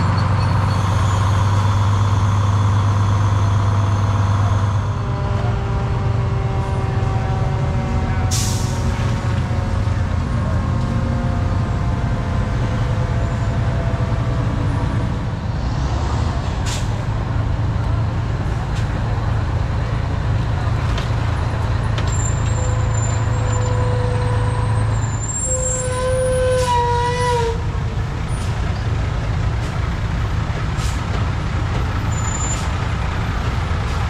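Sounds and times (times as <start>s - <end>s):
fire truck engines running: 0.0s - 34.0s
air brake hiss: 8.3s - 8.8s.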